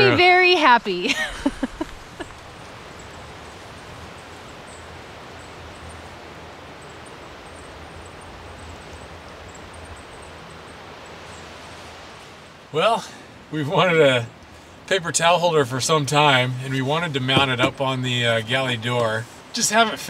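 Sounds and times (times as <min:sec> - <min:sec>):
wind through forest: 0:00.0 - 0:20.0
faint bird chirps: 0:02.1 - 0:11.7.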